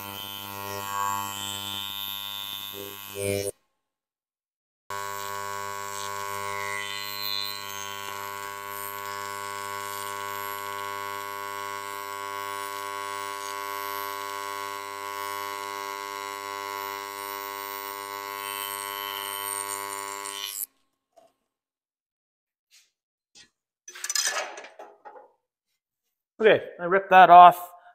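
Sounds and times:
welding arc buzzing: 0.0 - 3.6, 4.9 - 20.7.

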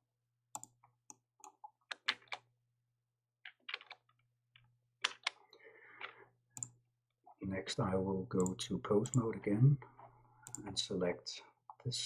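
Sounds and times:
keyboard and mouse clicking: 0.5 - 0.8, 6.6 - 6.8, 8.4 - 9.3, 10.4 - 10.8.

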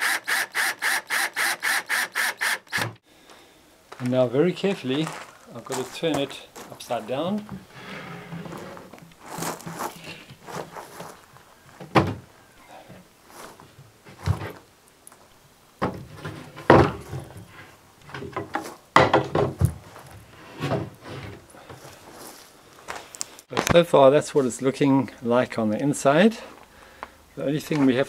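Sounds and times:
cabinet scraping on board: 7.7 - 9.0
wooden knocks and thumps: 11.8 - 12.2, 15.8 - 17.5, 18.1 - 21.4.

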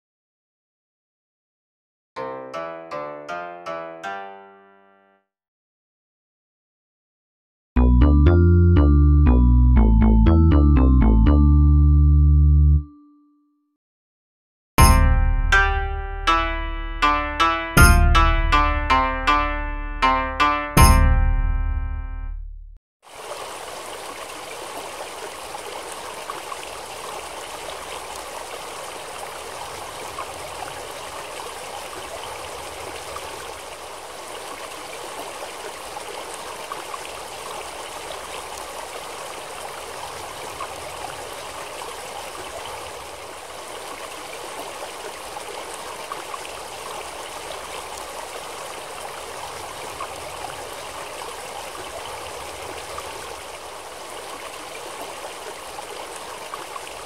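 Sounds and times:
stream flowing over rocks: 23.0 - 57.0.

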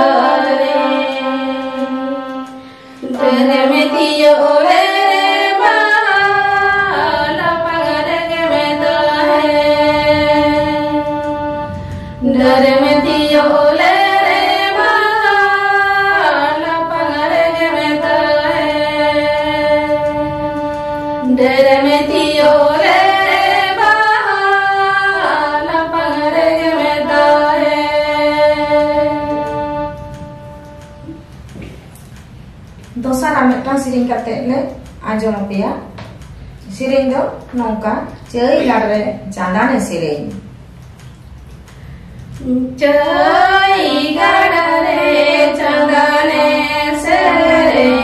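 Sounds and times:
women singing together: 0.0 - 31.3, 42.4 - 48.0
electronic keyboard chords: 0.0 - 33.0, 43.0 - 48.0.

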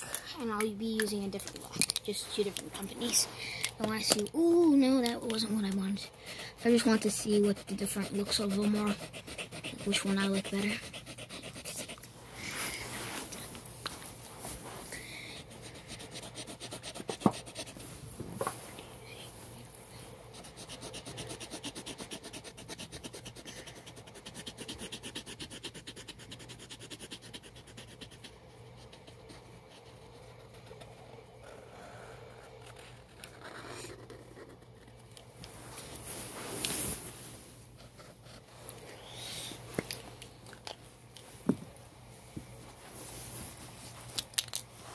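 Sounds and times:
marker scratching on canvas: 5.2 - 12.0, 15.4 - 17.8, 20.3 - 31.0.

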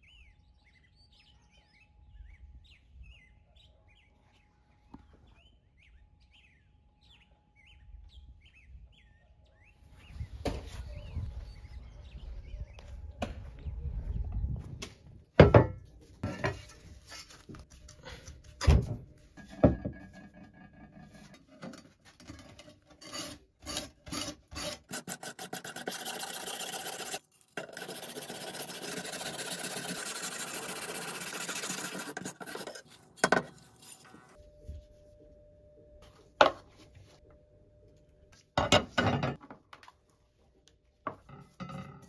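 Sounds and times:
hand tool scraping steel blade: 22.5 - 34.4.

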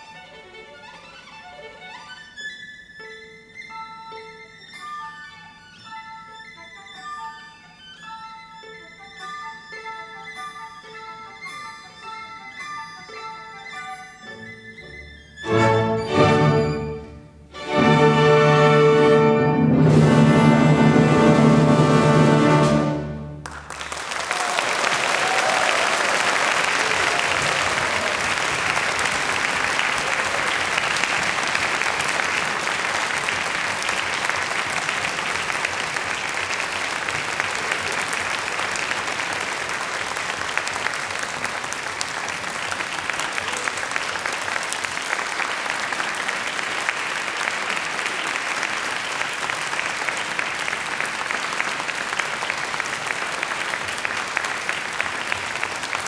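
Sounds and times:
audience applauding: 23.4 - 56.0.

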